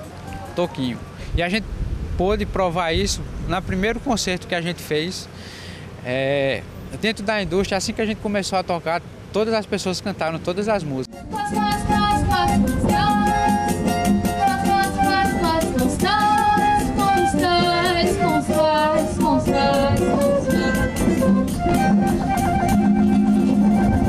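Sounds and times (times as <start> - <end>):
pandeiro beat: 0.0 - 1.2, 11.0 - 24.0
clarinet: 11.1 - 24.0
strummed guitars: 11.1 - 24.0
woman singing: 11.2 - 13.7, 14.3 - 21.1.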